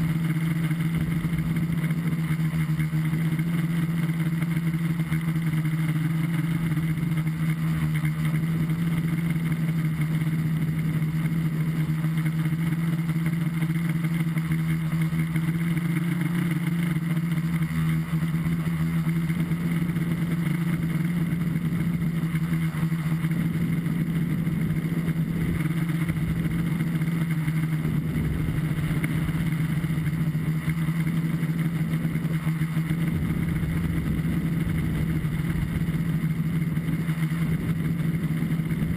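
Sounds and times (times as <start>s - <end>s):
drone motors humming: 0.0s - 38.9s
wind rumble on microphone: 27.8s - 30.5s, 33.0s - 38.9s.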